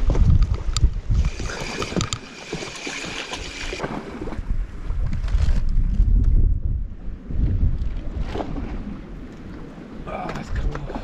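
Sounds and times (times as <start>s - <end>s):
wind buffeting microphone: 0.0s - 11.0s
fishing reel whirring: 1.2s - 3.8s.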